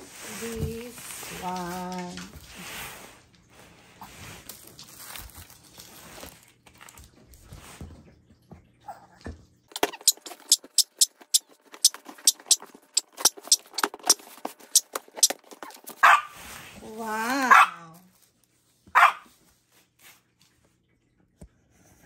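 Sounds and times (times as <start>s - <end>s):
box rustling: 9.8s - 16.3s.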